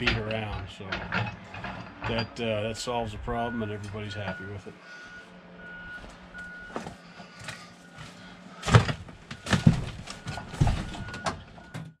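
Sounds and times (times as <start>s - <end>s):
diesel engine running: 0.0s - 11.9s
backup alarm beeping: 2.1s - 12.0s
loud thumps and clatters: 8.6s - 11.9s.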